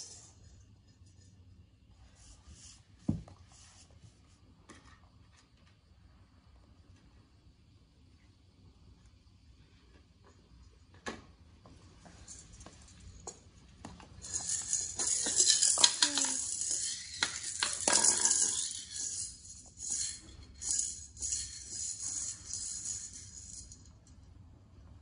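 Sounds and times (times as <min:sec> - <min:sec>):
maracas rattling: 0:14.2 - 0:24.0.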